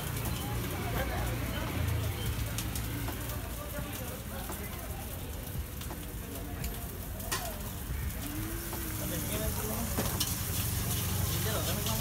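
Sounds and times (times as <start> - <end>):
utensils clicking on griddle: 5.7 - 12.0
indistinct voices: 6.7 - 9.9.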